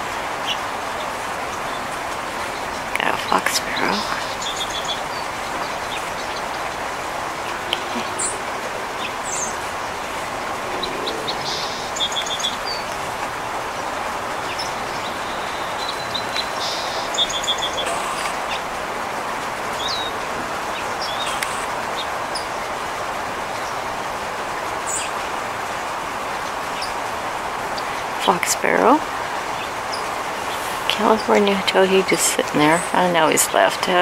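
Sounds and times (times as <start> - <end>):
outdoor background noise: 0.0 - 34.0
songbirds calling: 0.0 - 34.0.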